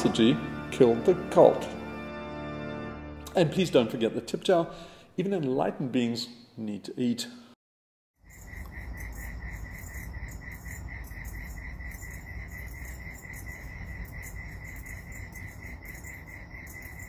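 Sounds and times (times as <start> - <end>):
crickets chirping: 8.2 - 17.0.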